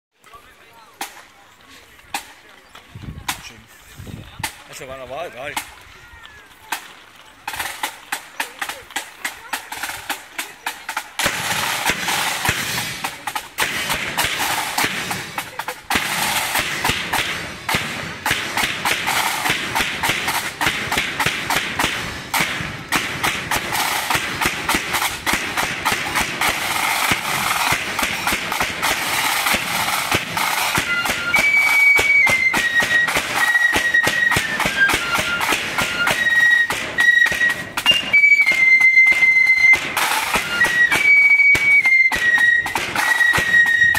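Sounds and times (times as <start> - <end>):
bass drum beat: 7.5 - 31.4
flute melody: 25.8 - 43.9.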